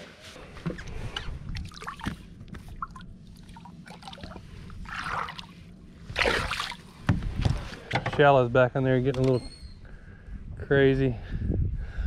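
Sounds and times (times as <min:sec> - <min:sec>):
water splashing and sloshing: 0:00.6 - 0:07.9.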